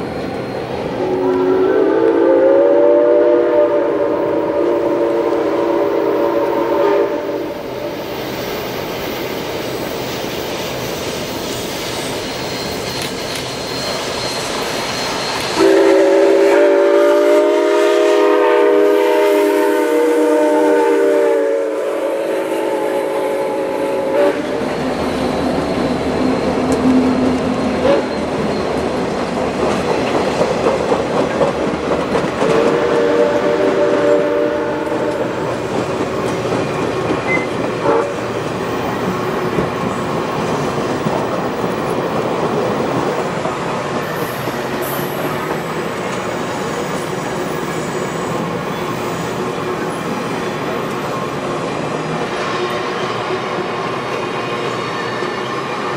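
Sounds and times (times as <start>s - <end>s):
chime steam whistle: 0.8s - 8.4s, 10.9s - 28.8s, 32.5s - 35.5s
train wheels clattering over rail joints: 26.3s - 32.9s, 35.1s - 37.8s.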